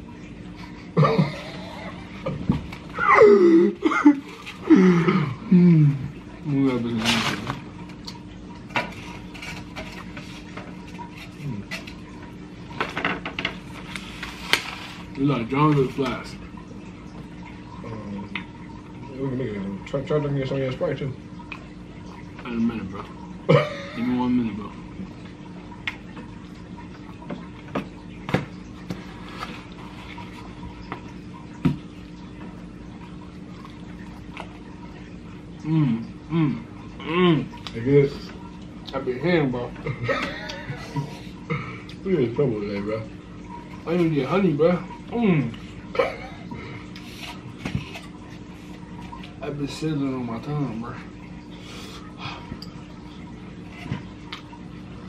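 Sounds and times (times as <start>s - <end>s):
steady low hum: 0.0s - 55.0s
soft clicks and taps of eating: 25.8s - 26.3s.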